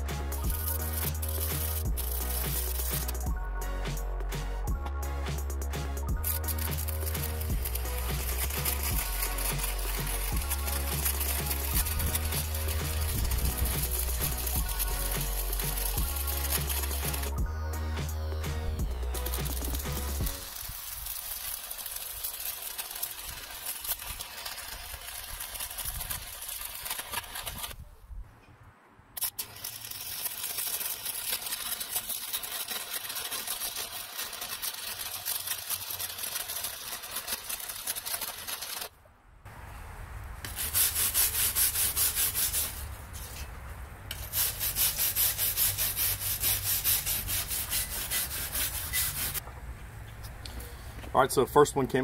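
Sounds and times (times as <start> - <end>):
welding arc crackling: 0.0 - 3.4, 5.2 - 27.8, 29.2 - 38.9, 44.1 - 49.4
wire brush scrubbing metal: 0.0 - 4.3, 5.2 - 27.8, 29.2 - 38.9, 40.4 - 43.5, 44.1 - 49.4.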